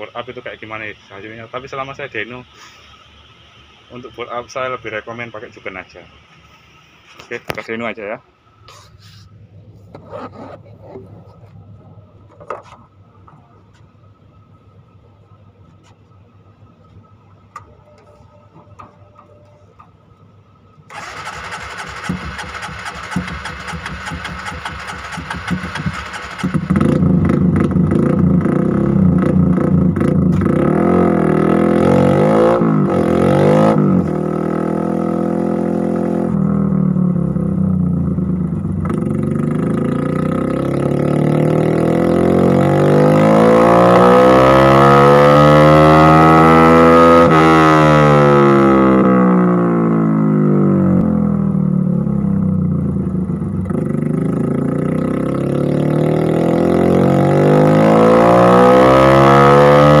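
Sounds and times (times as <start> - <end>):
motorcycle engine revving: 20.9 - 60.0.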